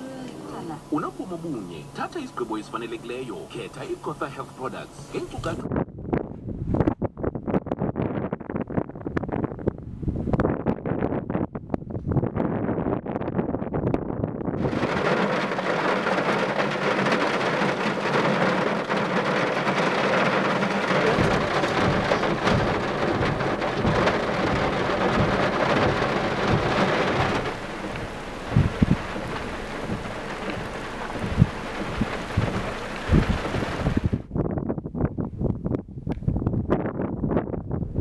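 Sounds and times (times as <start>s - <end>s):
heavy rain on car roof: 0.0s - 5.6s, 14.6s - 34.3s
wind thumps on microphone: 5.4s - 38.0s.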